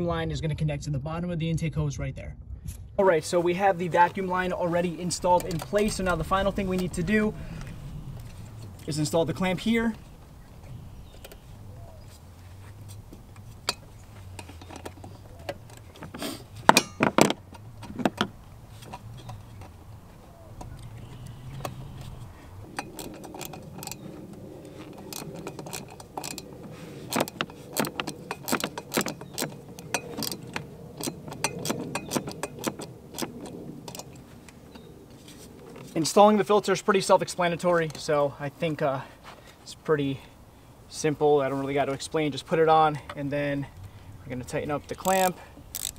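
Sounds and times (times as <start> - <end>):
metal clicks and knocks from handling: 5.2 - 7.0, 12.8 - 19.8, 20.6 - 34.9, 44.9 - 45.9
hand ratchet clicking: 20.6 - 34.2, 45.0 - 45.9.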